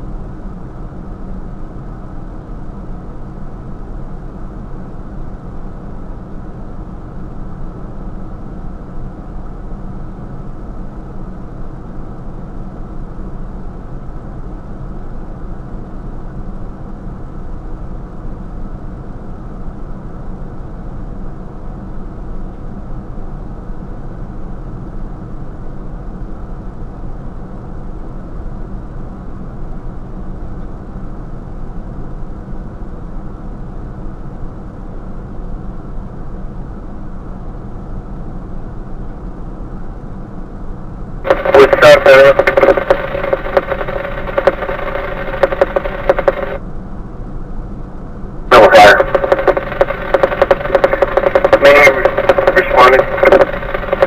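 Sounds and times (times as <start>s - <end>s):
fire engine idling: 41.3s - 46.6s, 48.5s - 54.0s.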